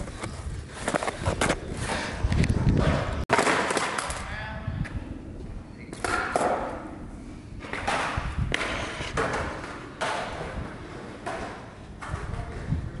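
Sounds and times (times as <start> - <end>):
skateboard wheels rolling: 0.0 - 4.2, 4.9 - 13.0
skateboard clacking on concrete: 2.8 - 4.3.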